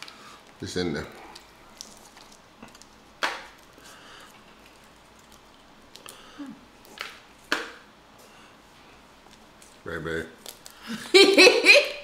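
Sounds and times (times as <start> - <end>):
shell clicks and wet squishing: 1.3 - 6.2, 10.4 - 10.8.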